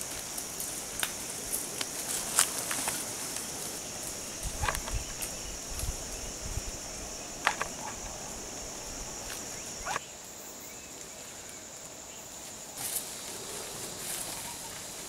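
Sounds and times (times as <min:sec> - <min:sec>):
rustling undergrowth: 0:00.0 - 0:10.2, 0:12.3 - 0:15.0
high-pitched insect drone: 0:02.8 - 0:10.8.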